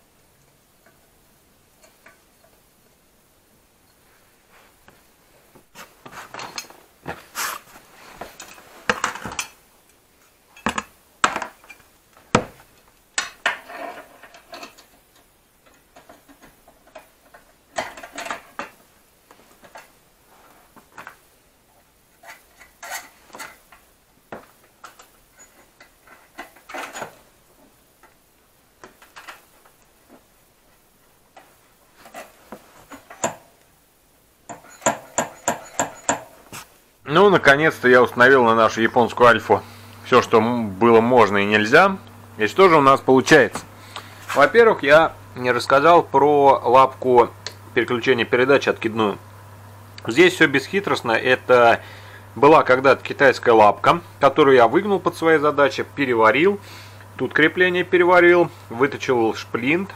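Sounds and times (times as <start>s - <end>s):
tools and metal parts clinking: 6.3s - 6.8s, 13.2s - 18.8s, 22.2s - 23.8s, 24.8s - 27.2s, 28.9s - 29.5s, 31.4s - 33.4s, 34.5s - 36.4s.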